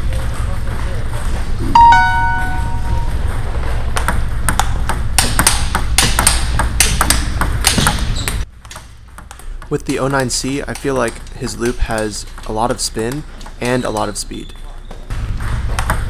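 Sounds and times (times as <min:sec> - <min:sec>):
bell-like ping: 0:01.6 - 0:03.3
table tennis ball hits: 0:04.0 - 0:14.0, 0:15.1 - 0:16.0.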